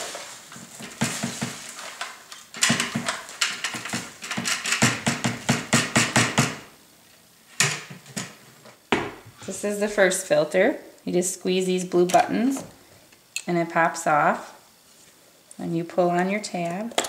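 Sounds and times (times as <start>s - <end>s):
plastic bag rustling: 0.0s - 4.2s
plastic bin knocking and rattling: 0.6s - 1.9s, 2.6s - 6.6s.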